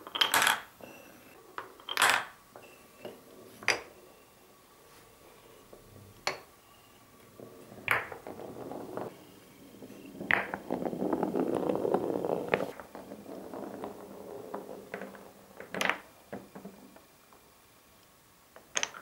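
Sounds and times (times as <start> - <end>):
balls ticking against wood: 0.0 - 0.7, 7.2 - 9.2, 9.8 - 17.5, 18.6 - 19.0
marbles rolling on wooden blocks: 0.0 - 0.7, 1.5 - 4.0, 7.2 - 17.6, 18.5 - 19.0.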